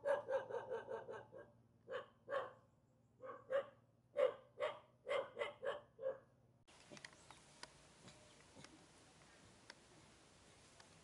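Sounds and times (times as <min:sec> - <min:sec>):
dog barking: 0:00.0 - 0:02.6, 0:03.2 - 0:06.3.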